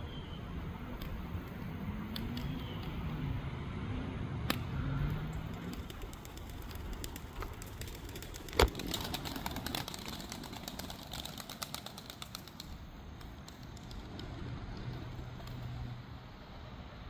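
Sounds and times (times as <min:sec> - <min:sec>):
pigeon wing claps and flaps: 0:05.4 - 0:15.6.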